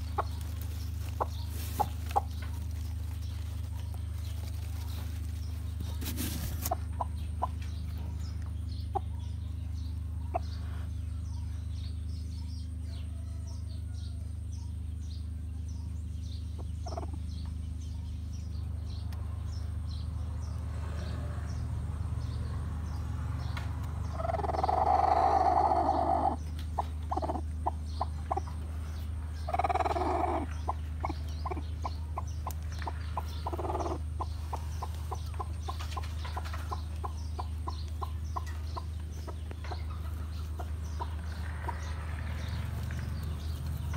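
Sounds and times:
hen clucking softly: 5.8 - 11.0, 16.5 - 17.6, 24.1 - 42.9
hen calling loudly: 24.1 - 28.6, 29.4 - 35.5.

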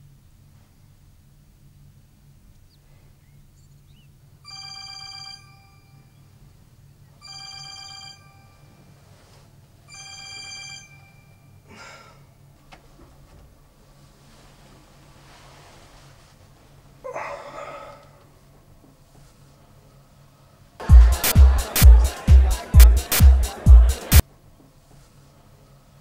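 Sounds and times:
phone ringing: 4.4 - 6.2, 7.2 - 9.0, 9.9 - 11.6
bedding rustling: 12.5 - 17.0.

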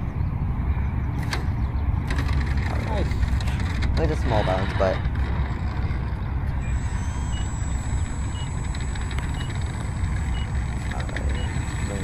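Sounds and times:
electric model plane motor whining: 4.0 - 12.0.

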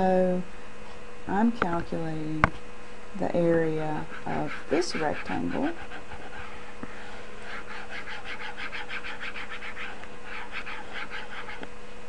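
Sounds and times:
faint steady hum: 0.0 - 12.0
stylus scribbling on tablet screen: 3.8 - 11.6.

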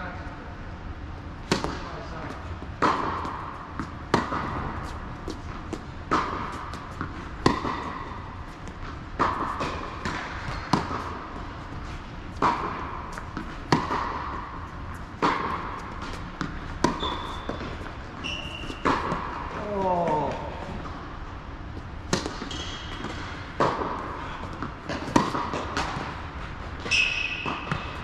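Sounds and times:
tennis ball struck by racket: 1.4 - 20.2, 22.0 - 28.0
ball bouncing on court: 1.4 - 21.0, 22.0 - 26.2, 26.8 - 28.0
shoe squeaks: 16.9 - 19.0, 22.4 - 23.4, 26.8 - 28.0.

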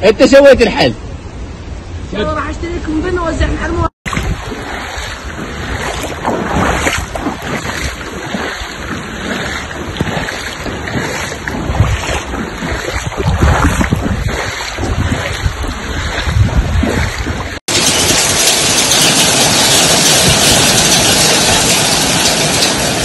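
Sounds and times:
floodwater rushing: 3.3 - 23.0
wind buffeting microphone: 3.3 - 23.0.

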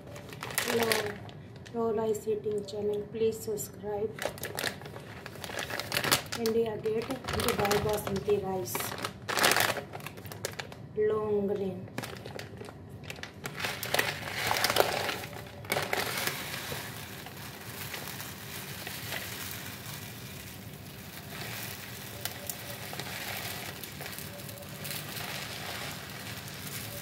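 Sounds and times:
plastic pouch rustling: 0.0 - 1.7, 4.2 - 10.8, 11.9 - 27.0
rice grains pouring into bowl: 13.6 - 27.0.

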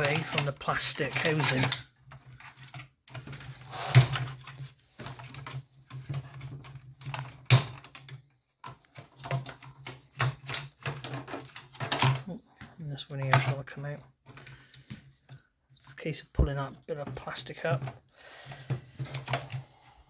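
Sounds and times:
plastic clips snapping and rattling: 0.0 - 12.4.

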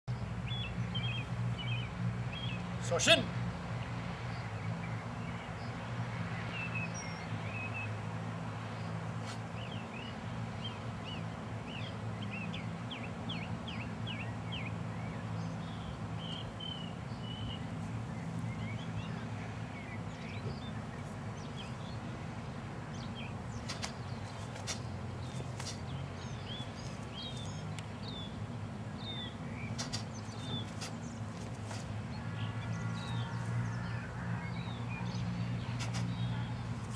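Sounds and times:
birds chirping: 0.1 - 36.9
sharp clicks: 23.6 - 24.0.

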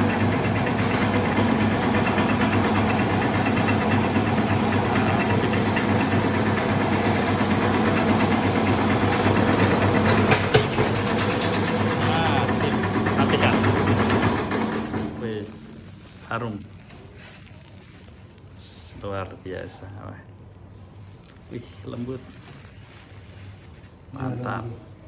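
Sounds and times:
bread slicer motor humming: 0.0 - 17.8.

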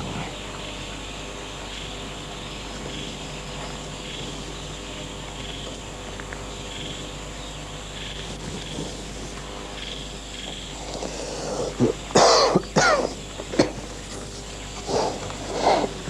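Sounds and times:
faint crickets chirping: 0.0 - 16.0
man coughing: 11.8 - 13.9.

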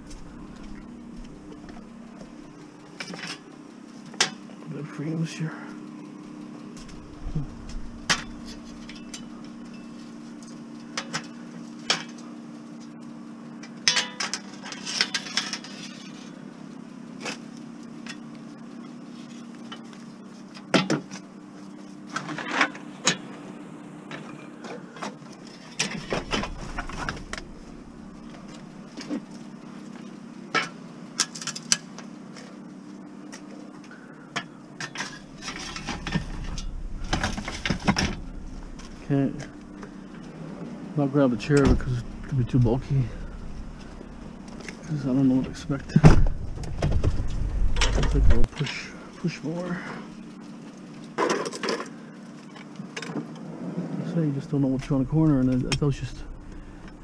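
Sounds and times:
steady low hum: 0.0 - 13.7, 22.8 - 31.0, 32.2 - 51.1, 54.1 - 57.0
scrap metal clanking: 6.8 - 10.1, 25.5 - 29.1, 34.9 - 40.3, 41.4 - 44.9.

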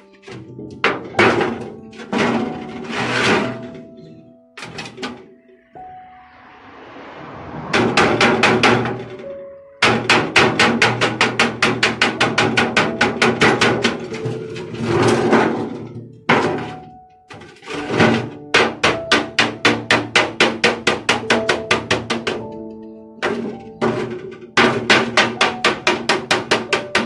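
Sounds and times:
hammer beating sheet steel: 7.7 - 14.4, 16.3 - 22.5, 23.2 - 27.0.

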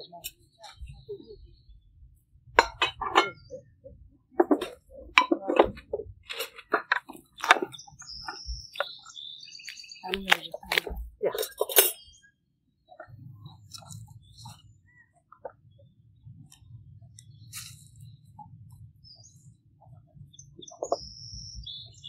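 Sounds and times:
people talking: 0.0 - 1.8, 2.6 - 9.0, 10.0 - 12.0.

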